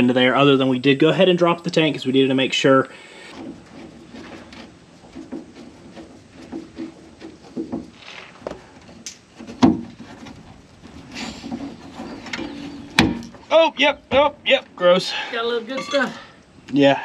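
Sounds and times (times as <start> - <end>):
metal scraping: 2.6 - 16.4
metal knocks: 3.3 - 14.4.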